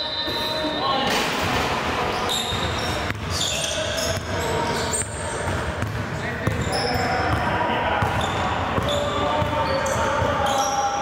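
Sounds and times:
crowd voices: 0.0 - 11.0
sneakers squeaking: 2.0 - 11.0
basketball bouncing on court: 2.5 - 3.4, 4.0 - 10.4.

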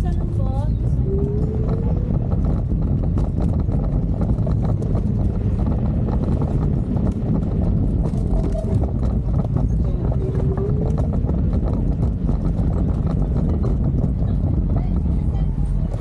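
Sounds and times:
scooter rolling rumble: 0.0 - 16.0.

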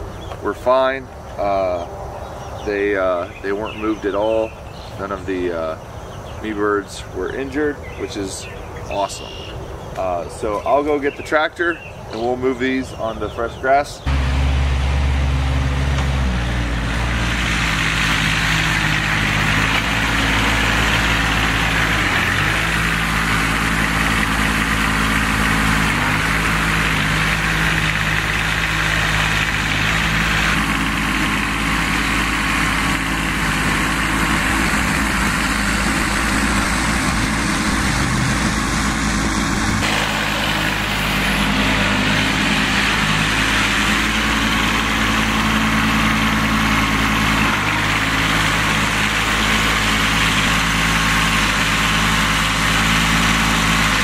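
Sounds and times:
tractor engine running: 14.0 - 54.0.

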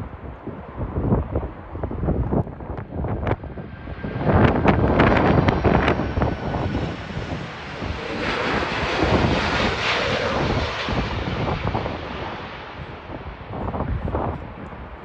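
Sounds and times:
jet passing low overhead: 0.0 - 15.0
wind rumbling on microphone: 0.0 - 15.0.

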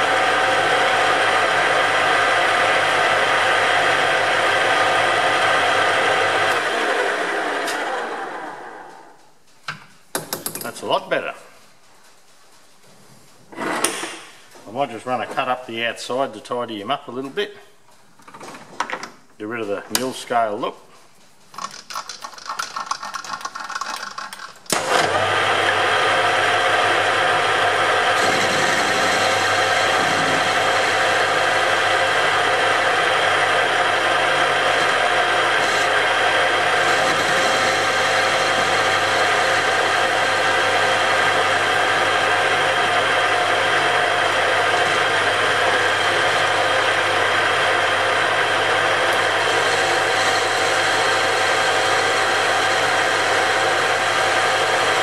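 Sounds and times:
metal lathe running: 0.0 - 9.0, 24.7 - 55.0
lathe cutting steel: 24.7 - 55.0.

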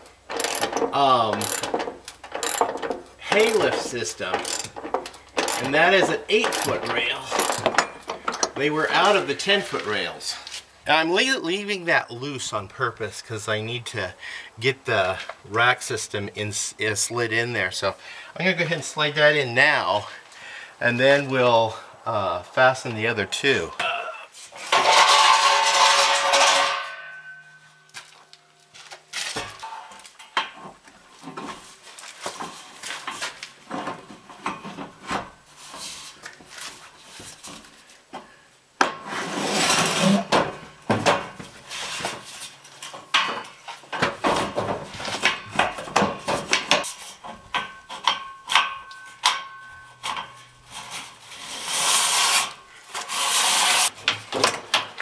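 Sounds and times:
metal door rail scraping and knocking: 0.3 - 8.5.

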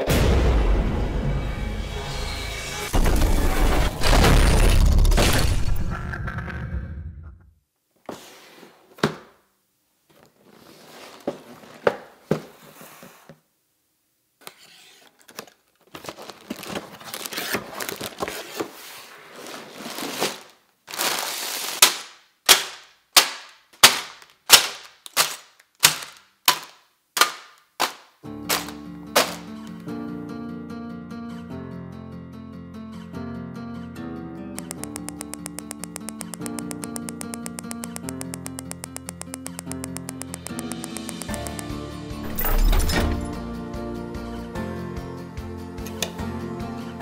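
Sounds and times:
plastic bags clacking down: 15.9 - 18.3, 28.5 - 29.6.

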